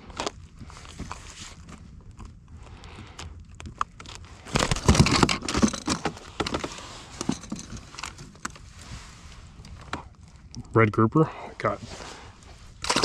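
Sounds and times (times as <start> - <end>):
fish handled with knocks and clatter: 0.1 - 10.5.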